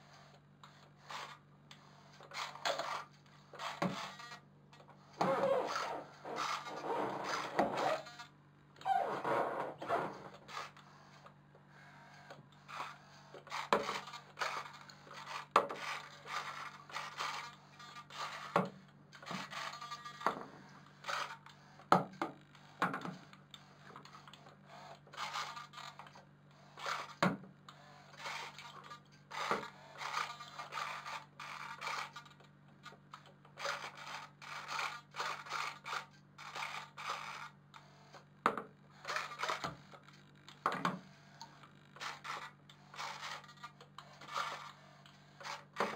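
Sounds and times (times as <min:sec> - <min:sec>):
scraping noises: 0:05.2 - 0:08.2, 0:08.8 - 0:10.8
small electric motor whirring: 0:05.2 - 0:10.8, 0:19.2 - 0:20.3, 0:27.8 - 0:32.3, 0:41.4 - 0:45.9.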